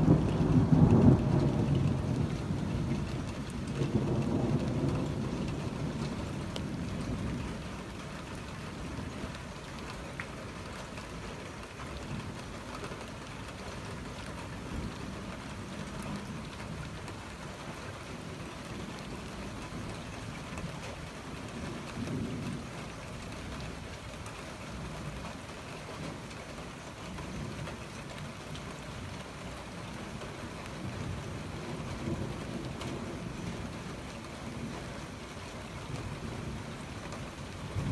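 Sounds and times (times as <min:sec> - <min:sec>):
thunder rumble: 0:00.0 - 0:07.9, 0:35.8 - 0:37.9
steady rain falling: 0:00.0 - 0:37.9.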